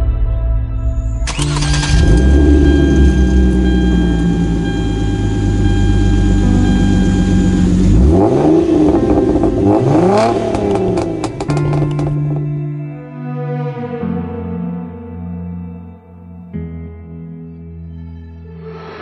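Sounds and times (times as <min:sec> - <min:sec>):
car engine idling and revving: 0:01.3 - 0:12.5.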